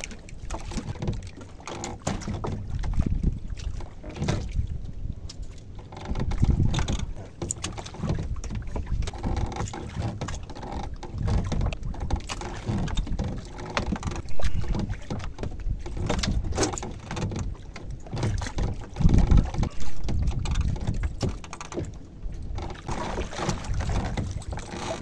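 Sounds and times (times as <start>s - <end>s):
water lapping against boat hull: 0.0s - 25.0s
short wet clicks and knocks: 5.3s - 25.0s.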